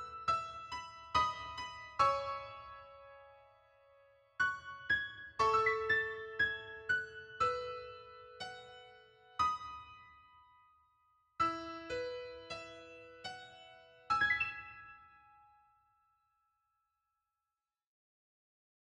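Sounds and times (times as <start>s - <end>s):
solo piano: 0.0s - 10.8s, 11.4s - 15.8s.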